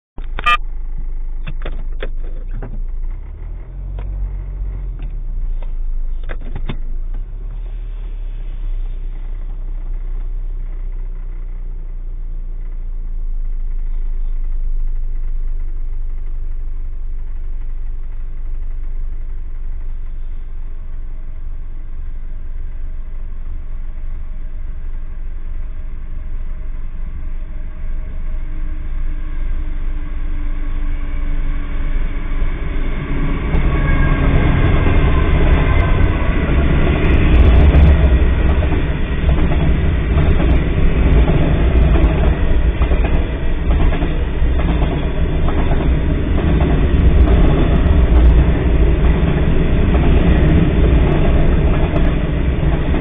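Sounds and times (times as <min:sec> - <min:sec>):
car engine idling: 0:00.2 - 0:53.0.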